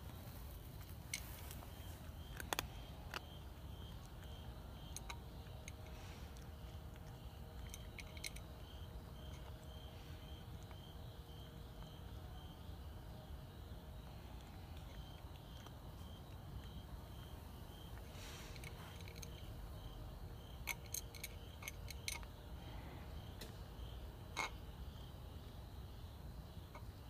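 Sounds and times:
cricket chirping: 0.0s - 27.0s
cat eating from a bowl: 0.3s - 12.6s, 14.0s - 22.4s.

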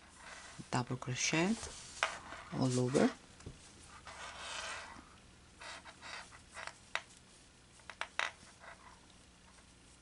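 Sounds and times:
yarn rustling: 1.3s - 4.0s.

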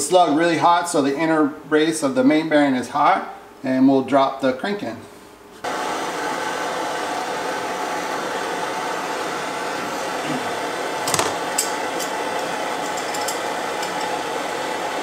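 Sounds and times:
gas torch flame hissing: 5.6s - 15.0s.

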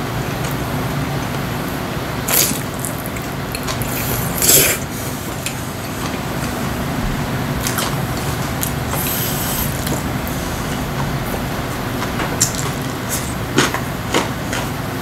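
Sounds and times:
steady low hum: 0.0s - 15.0s
man slurping noodles: 3.8s - 5.2s, 8.6s - 11.4s.

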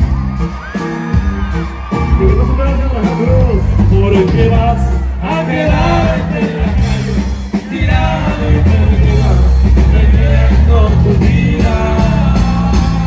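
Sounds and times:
electric bass and guitar: 0.0s - 13.0s
button accordion melody: 4.7s - 13.0s.

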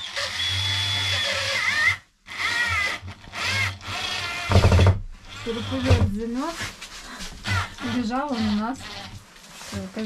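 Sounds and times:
cordless drill whining into wood: 0.0s - 6.1s.

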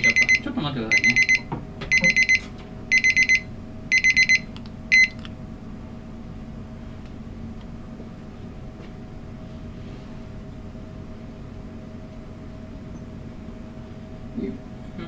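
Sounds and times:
digital kitchen timer beeping: 0.0s - 5.2s
steady low hum: 0.0s - 15.0s.

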